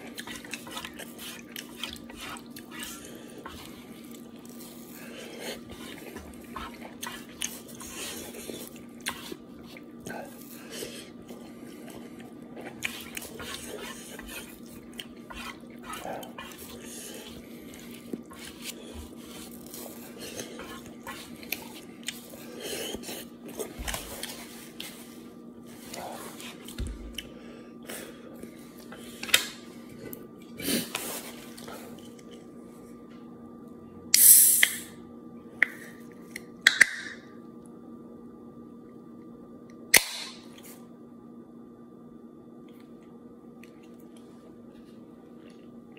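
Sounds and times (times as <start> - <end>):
quiet chewing: 0.0 - 33.2, 42.6 - 45.9
faint steady hum: 0.0 - 45.9.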